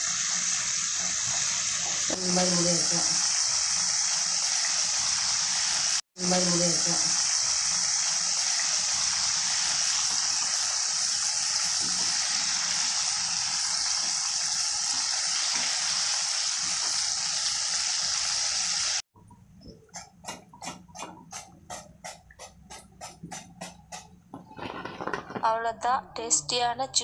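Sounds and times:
chicken deep-frying in hot oil: 0:00.0 - 0:19.0.

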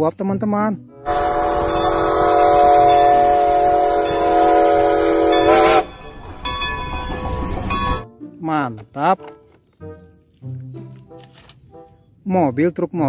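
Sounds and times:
steam locomotive whistle: 0:01.0 - 0:07.9
steam hissing: 0:01.1 - 0:07.9.

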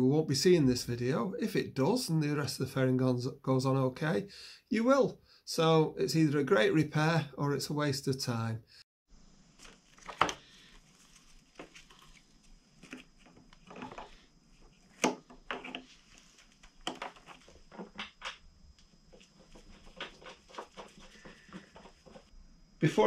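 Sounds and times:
gloved hands rustling: 0:09.4 - 0:22.3.

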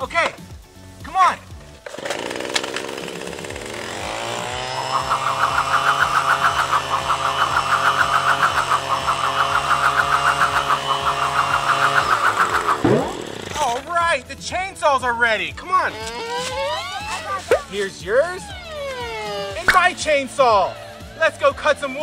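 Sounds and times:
leaf blower motor running: 0:01.5 - 0:13.9, 0:15.5 - 0:22.0.

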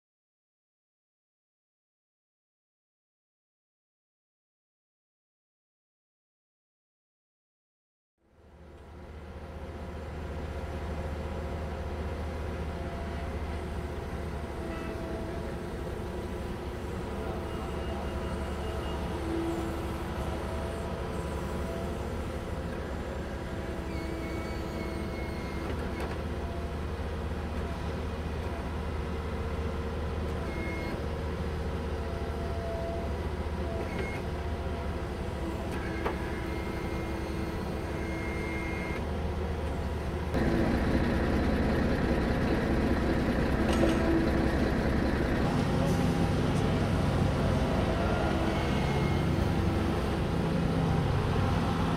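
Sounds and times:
excavator diesel engine running: 0:08.3 - 0:51.9
pitched hydraulic tone: 0:23.7 - 0:26.0, 0:45.5 - 0:50.1.

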